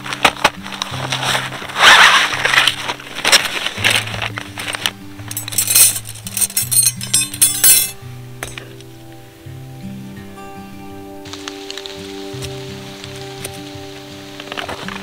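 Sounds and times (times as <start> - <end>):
background music with bass line: 0.0 - 15.0
rustle: 0.0 - 15.0
metal rods clinking and rattling: 2.5 - 8.8.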